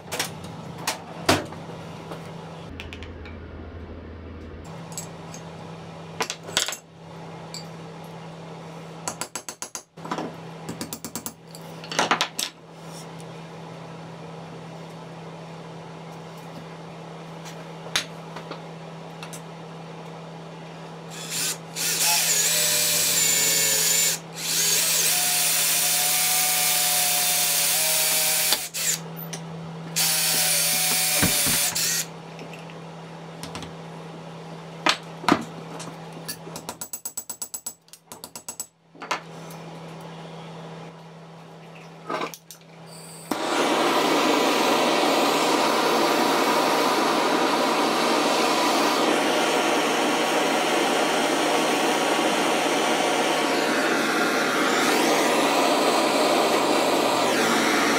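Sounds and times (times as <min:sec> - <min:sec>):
cordless drill drilling into wood: 0:21.2 - 0:29.0, 0:30.0 - 0:32.1, 0:47.9 - 0:57.9
hand tool clicks and knocks: 0:36.3 - 0:38.7.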